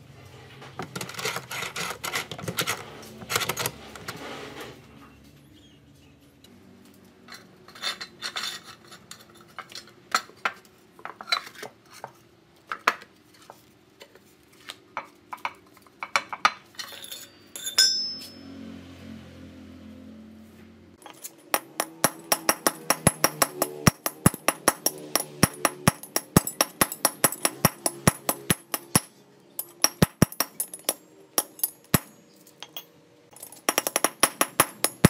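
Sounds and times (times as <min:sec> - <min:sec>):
steel rod clinking on metal: 0:16.8 - 0:18.4, 0:21.0 - 0:35.0
ringing metal ping: 0:17.2 - 0:18.6.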